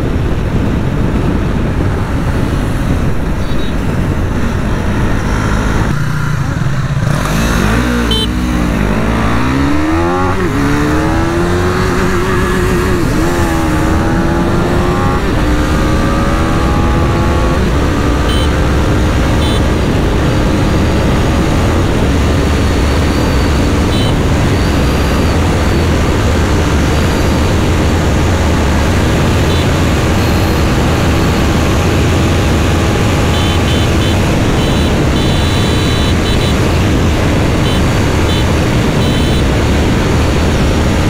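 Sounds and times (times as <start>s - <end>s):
wind rush on microphone: 0.0s - 7.8s, 8.5s - 41.0s
motorcycle engine at high revs: 0.0s - 41.0s.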